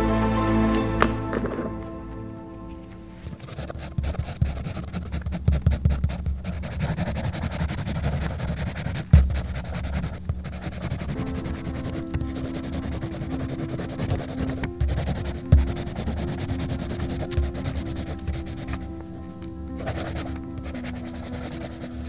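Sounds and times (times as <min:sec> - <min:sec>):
pencil scratching on paper: 0:03.3 - 0:18.8, 0:19.8 - 0:22.0.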